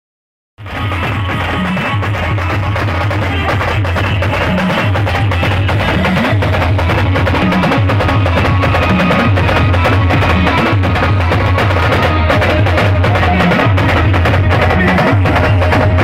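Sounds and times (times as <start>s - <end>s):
deep low drum beat: 0.6s - 16.0s
drum band playing fast: 0.6s - 16.0s.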